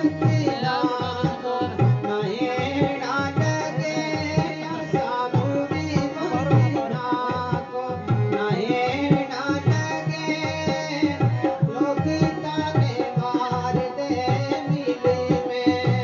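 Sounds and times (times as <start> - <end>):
harmonium chords: 0.0 - 16.0
person singing: 0.0 - 16.0.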